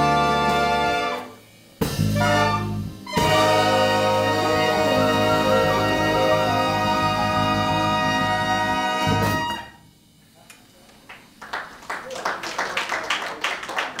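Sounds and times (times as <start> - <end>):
big band horns chord: 0.0 - 10.0
hand clapping: 10.9 - 14.0.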